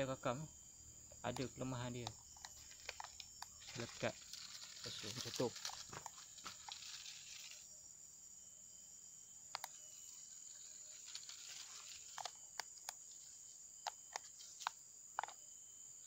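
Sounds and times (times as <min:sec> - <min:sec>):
insect chirring: 0:00.0 - 0:16.0
dry leaves and twigs crackling: 0:01.4 - 0:07.7, 0:09.7 - 0:15.4.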